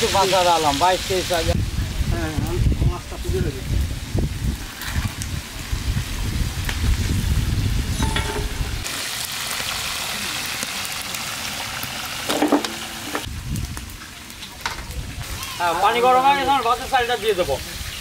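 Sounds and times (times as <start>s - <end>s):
fish sizzling in oil: 0.0s - 18.0s
metal skimmer scraping pan: 8.0s - 8.9s, 12.3s - 13.3s.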